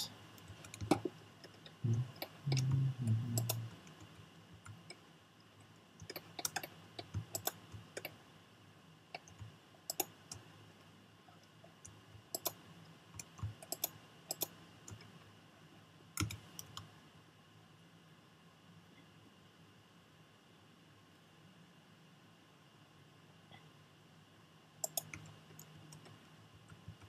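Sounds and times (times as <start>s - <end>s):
keyboard and mouse clicks: 0.0s - 5.0s, 6.0s - 8.2s, 9.2s - 10.5s, 11.7s - 12.6s, 13.2s - 15.1s, 16.2s - 16.9s, 24.8s - 27.0s
low hum: 1.8s - 3.9s.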